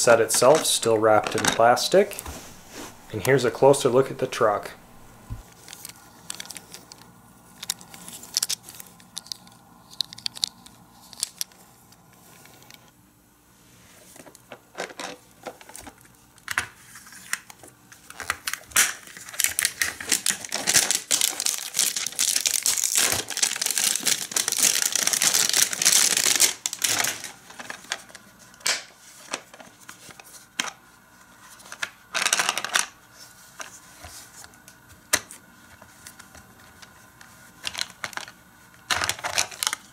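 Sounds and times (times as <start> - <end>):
plastic wrap crinkling and tearing: 18.0 - 28.2, 39.0 - 39.9.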